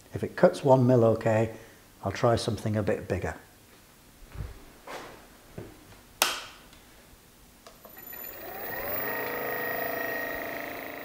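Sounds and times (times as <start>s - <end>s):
milling motor whining: 7.9s - 11.0s.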